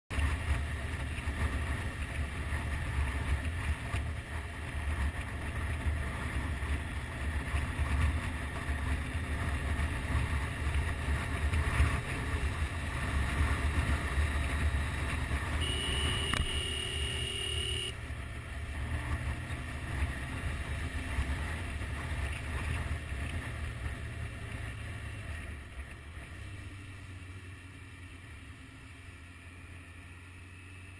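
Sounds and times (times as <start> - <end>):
motorcycle engine: 0.2 - 29.7
horn sounding: 15.6 - 18.0.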